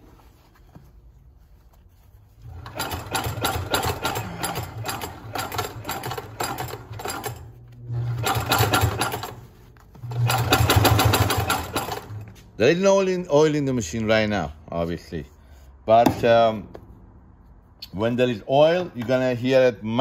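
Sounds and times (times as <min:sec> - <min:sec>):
industrial sewing machine stitching: 0:02.4 - 0:12.3.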